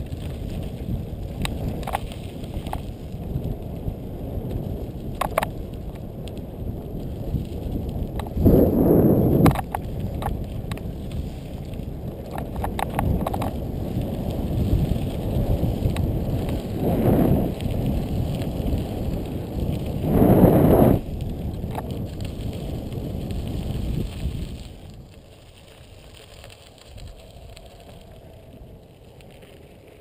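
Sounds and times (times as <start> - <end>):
bike rattling clicks: 0.0 - 3.8, 4.4 - 6.4, 7.2 - 8.4, 9.4 - 16.8, 21.2 - 24.8
wind on the microphone: 0.0 - 25.3
bike tyres on loose gravel: 0.0 - 30.0.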